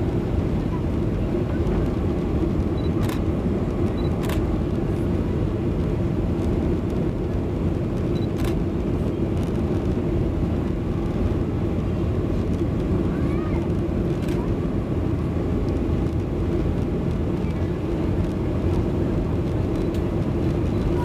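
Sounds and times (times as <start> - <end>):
jet engine and airflow roar: 0.0 - 21.0.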